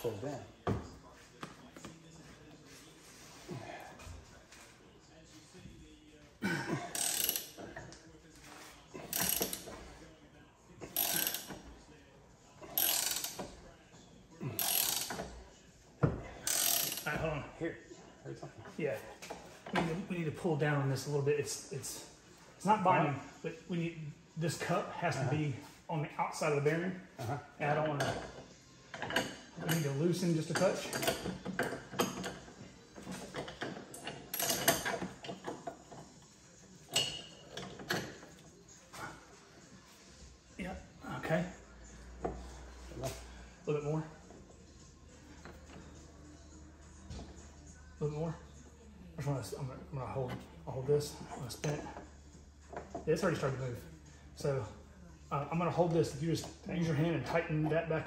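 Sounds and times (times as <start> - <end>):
wrenches clinking on metal: 9.0 - 9.9, 10.8 - 11.7, 12.7 - 13.6, 16.3 - 17.3, 27.8 - 36.2, 36.8 - 38.4
ratchet wrench clicking: 12.8 - 13.4.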